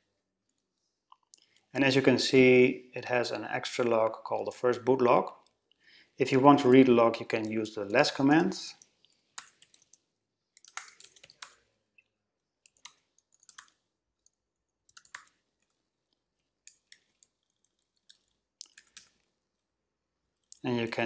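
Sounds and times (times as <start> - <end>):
faint keyboard typing: 7.2 - 19.7, 20.3 - 21.0.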